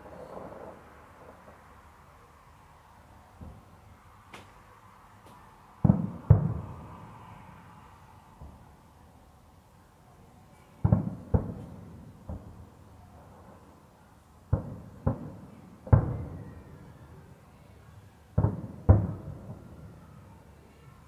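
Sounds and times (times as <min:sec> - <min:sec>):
distant firework booms: 0:05.8 - 0:07.1, 0:10.8 - 0:12.7, 0:14.5 - 0:16.4, 0:18.4 - 0:19.8.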